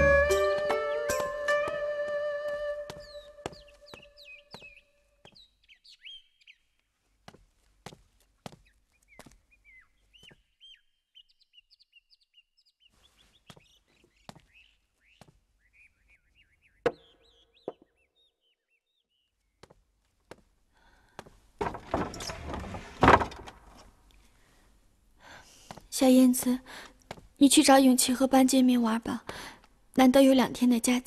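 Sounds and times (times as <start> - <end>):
birds chirping: 2.9 - 7.5, 8.1 - 19.8.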